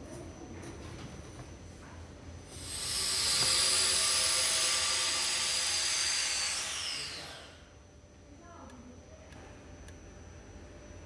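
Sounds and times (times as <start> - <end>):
high-speed motor whining: 2.6 - 7.7.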